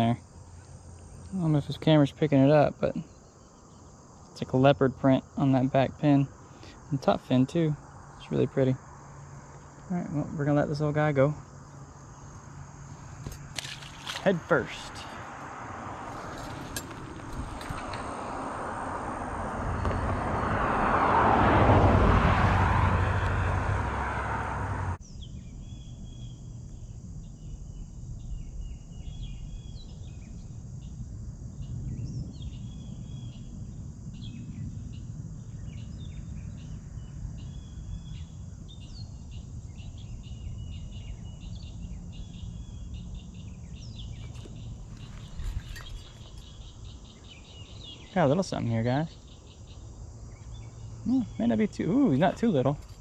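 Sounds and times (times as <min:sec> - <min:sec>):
birds chirping: 0:00.0 - 0:20.5, 0:34.2 - 0:53.0
insects chirping: 0:00.0 - 0:53.0.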